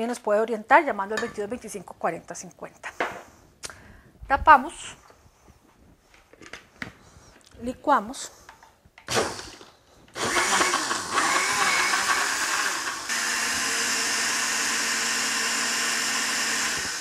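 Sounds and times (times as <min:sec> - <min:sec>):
blender running at full speed: 0:09.1 - 0:09.6, 0:10.2 - 0:17.0.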